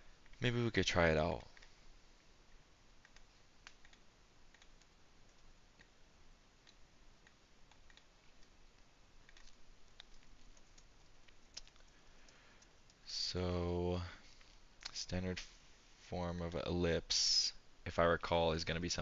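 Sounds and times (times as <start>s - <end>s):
mouse and keyboard clicking: 3.0s - 5.9s, 6.6s - 8.6s, 9.2s - 11.9s.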